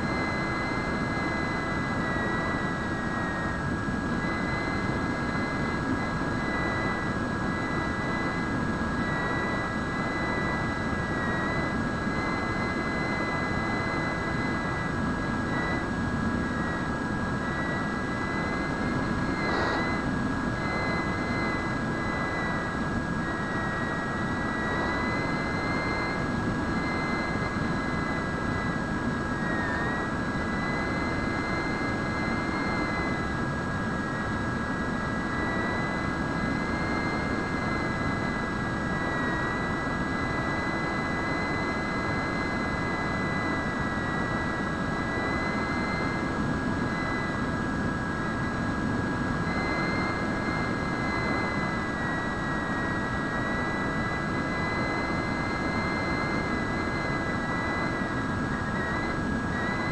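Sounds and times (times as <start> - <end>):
electric motor propeller whine: 0.0 - 59.9.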